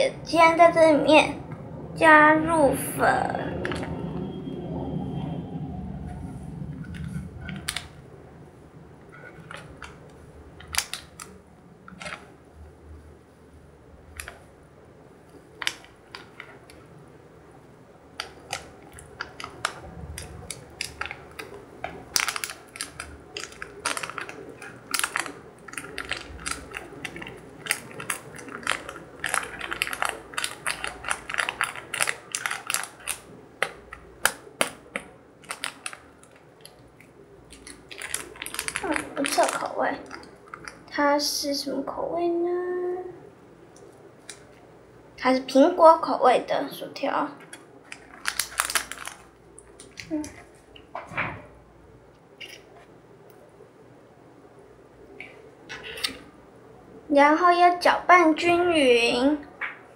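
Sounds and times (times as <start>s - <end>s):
plastic packet crinkling: 6.8s - 8.0s, 9.1s - 12.3s, 14.1s - 14.4s, 15.3s - 16.9s, 18.1s - 41.0s, 43.8s - 44.6s, 47.4s - 50.9s.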